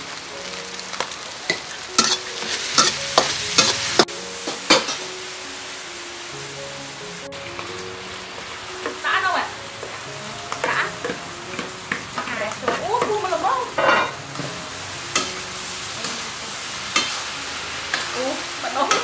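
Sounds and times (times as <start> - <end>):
food sizzling in a wok: 0.0 - 19.0
metal spatula scraping wok: 1.5 - 5.1, 10.6 - 19.0.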